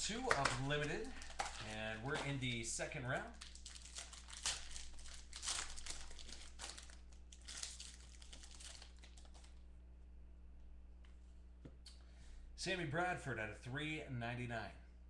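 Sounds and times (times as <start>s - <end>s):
foil wrapper crinkling: 0.0s - 9.6s.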